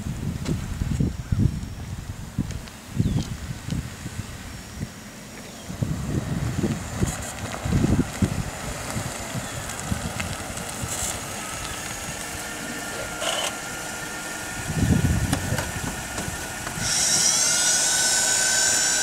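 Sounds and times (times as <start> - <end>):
high-pitched whine: 0.0 - 19.0
car engine idling: 4.2 - 17.1.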